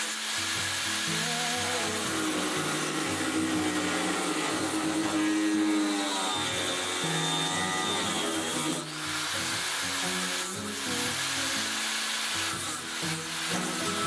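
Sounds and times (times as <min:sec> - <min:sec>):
angle grinder cutting steel: 0:00.0 - 0:14.0
background music: 0:00.4 - 0:11.6.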